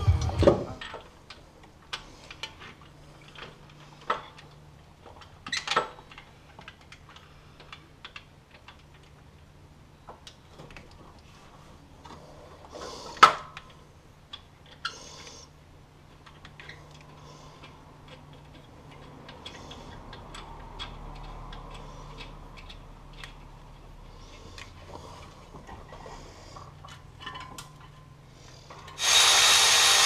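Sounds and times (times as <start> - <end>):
metallic clicks of tools and bolts: 16.2 - 23.8, 26.7 - 28.1.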